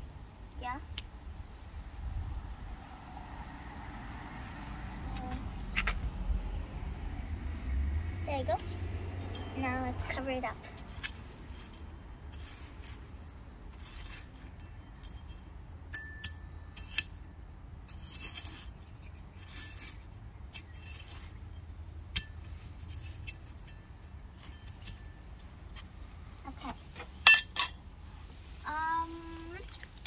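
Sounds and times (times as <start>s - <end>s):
sharp metallic clinks: 9.2s - 9.9s, 14.5s - 17.2s, 20.6s - 25.4s, 27.2s - 27.8s
metal trowel scraping soil: 9.4s - 25.6s.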